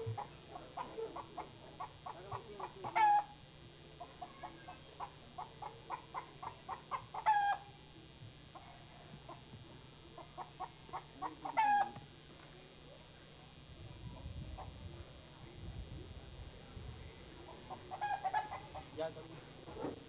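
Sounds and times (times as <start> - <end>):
chicken clucking: 0.0 - 3.3, 4.0 - 7.7, 10.2 - 12.0, 17.4 - 19.0.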